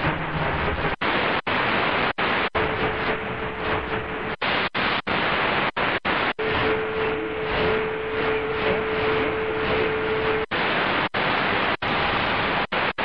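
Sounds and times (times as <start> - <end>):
shortwave radio static: 0.0 - 13.0
low whistle: 6.4 - 10.6.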